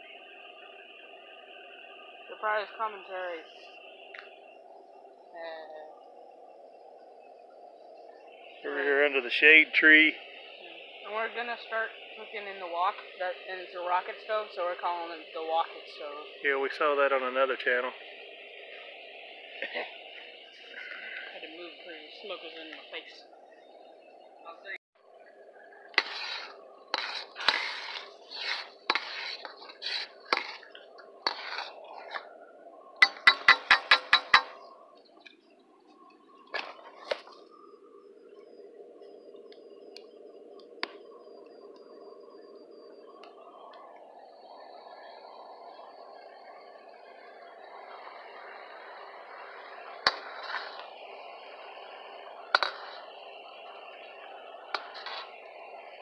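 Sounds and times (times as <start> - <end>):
hot oil sizzling: 25.8 - 35.5, 47.7 - 56.0
metal ladle scraping a wok: 26.0 - 32.3, 33.0 - 34.6, 54.8 - 55.4.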